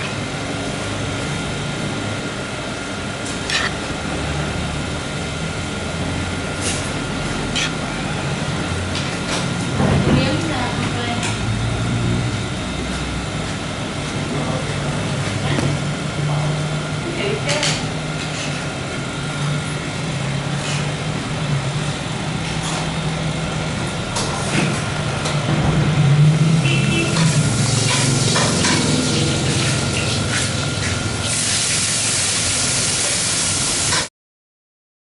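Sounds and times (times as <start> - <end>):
loud steady hiss: 31.2 - 34.1.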